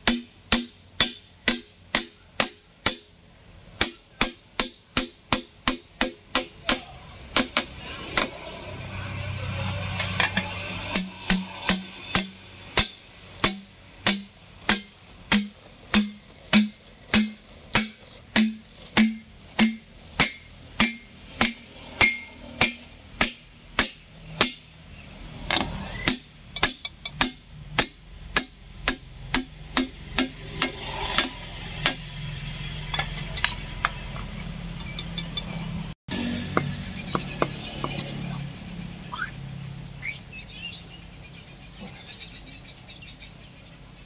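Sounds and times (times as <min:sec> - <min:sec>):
hammer striking metal plate: 0:00.0 - 0:03.2, 0:03.8 - 0:08.5, 0:10.0 - 0:24.8, 0:25.5 - 0:32.1.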